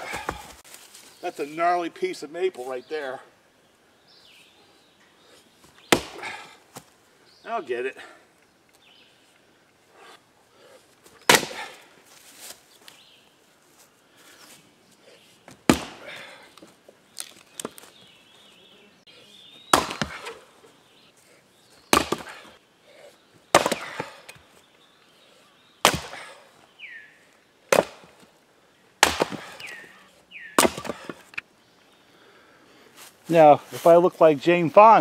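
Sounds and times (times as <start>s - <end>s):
axe chopping wood: 0.0s - 0.6s, 5.8s - 6.6s, 11.2s - 11.8s, 15.5s - 16.6s, 19.7s - 20.4s, 21.9s - 22.5s, 23.5s - 24.4s, 25.8s - 26.4s, 27.7s - 28.2s, 29.0s - 29.9s, 30.6s - 31.4s
wood splitting crack: 5.9s - 6.4s, 11.3s - 11.8s, 15.6s - 16.3s, 19.7s - 20.4s, 21.9s - 22.5s, 23.5s - 24.4s, 25.8s - 26.3s, 27.7s - 28.2s, 29.0s - 29.8s, 30.6s - 31.4s.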